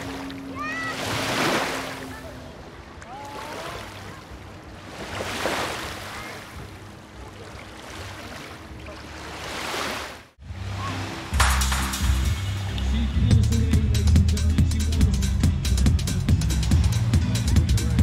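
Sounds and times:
small waves washing on sand: 0.0 - 11.3.

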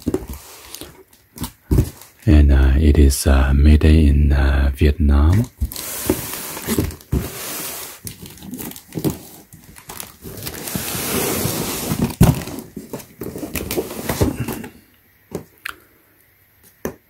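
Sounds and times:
cardboard scraping and rubbing: 5.6 - 9.5, 10.2 - 14.6.

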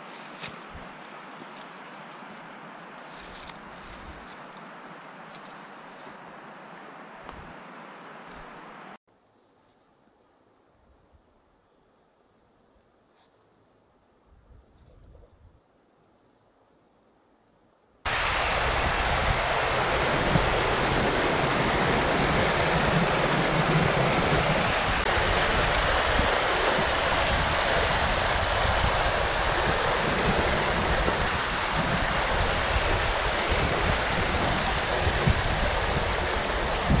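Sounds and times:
water rushing over rocks: 18.1 - 37.0.

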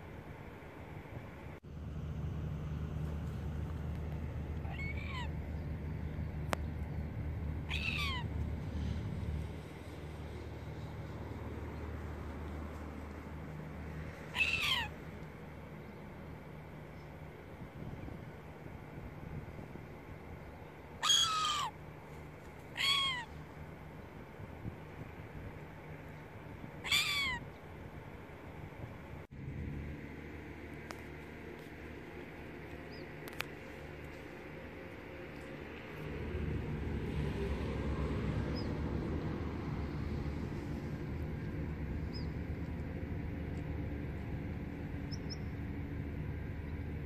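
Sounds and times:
steady low rumble: 0.0 - 47.0
gull calling: 4.6 - 5.7, 7.6 - 8.4, 14.3 - 15.0, 21.0 - 21.8, 22.7 - 23.4, 26.8 - 27.5.

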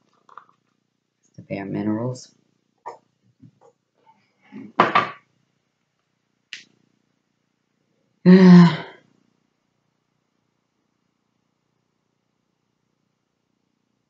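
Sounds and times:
woman clearing her throat: 8.3 - 9.0.

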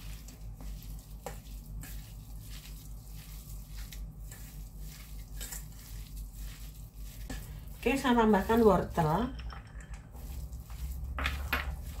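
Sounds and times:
hand kneading minced meat: 0.0 - 9.4, 10.0 - 12.0.

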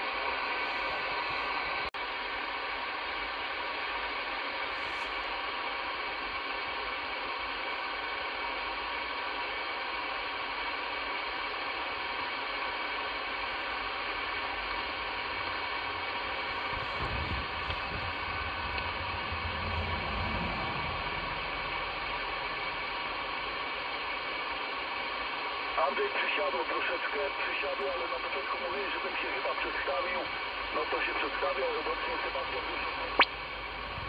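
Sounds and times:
radio static hiss: 0.0 - 34.0
low rumble: 15.4 - 23.9, 33.2 - 34.0.

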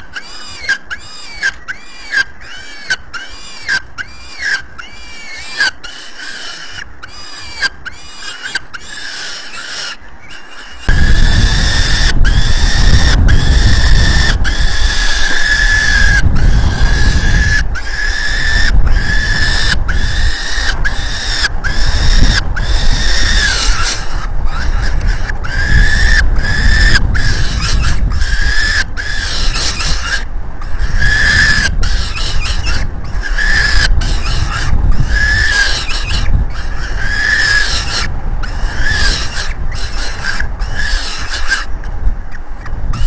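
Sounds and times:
falcon chick begging calls: 0.0 - 43.0
wind rumble on microphone: 10.8 - 43.0.

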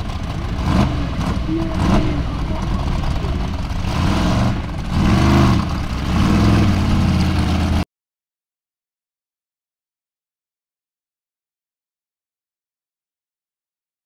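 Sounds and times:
buggy engine revving: 0.0 - 7.8.

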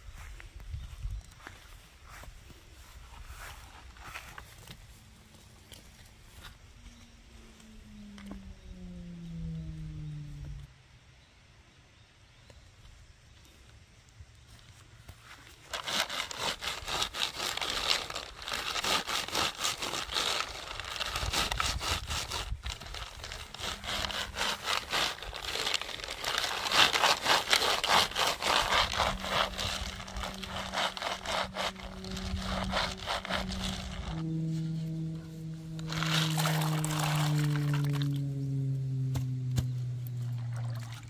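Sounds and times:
nuts scraping in a mesh basket: 15.7 - 34.2, 35.8 - 38.0.

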